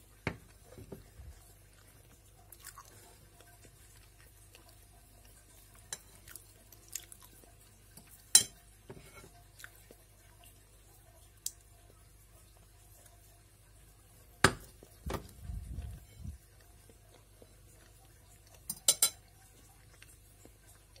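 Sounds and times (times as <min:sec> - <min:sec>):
fork clinking on ceramic plate: 0:18.7 - 0:19.2.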